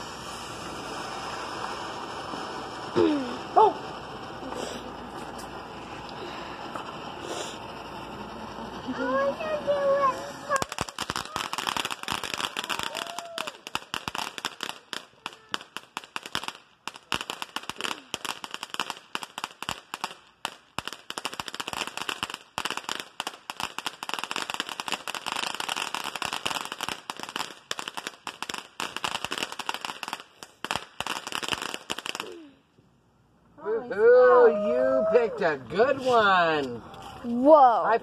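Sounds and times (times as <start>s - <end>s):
hiss of spraying sparks: 0.0s - 5.6s, 6.8s - 7.7s, 9.0s - 20.2s
firework crackling and popping: 0.0s - 32.8s.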